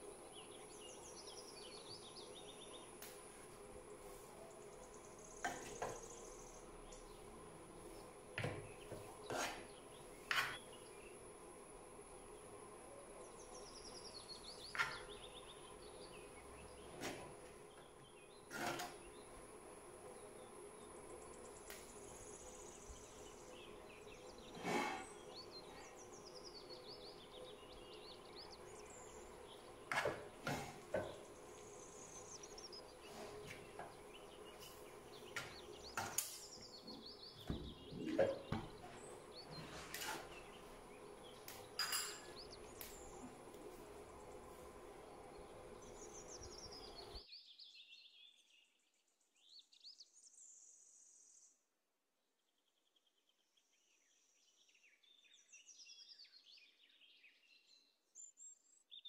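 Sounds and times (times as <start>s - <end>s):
birds chirping: 0.0s - 47.2s
faint steady hum: 0.0s - 47.2s
metal spoon scraping clay pot: 9.0s - 10.7s, 18.5s - 19.0s, 24.5s - 25.2s, 38.0s - 40.6s.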